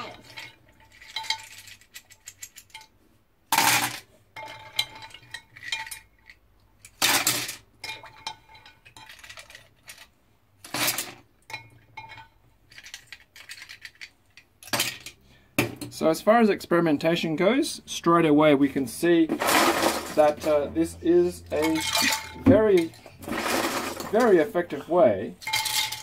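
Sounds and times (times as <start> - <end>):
plastic caps clinking against glass: 21.4 - 24.5.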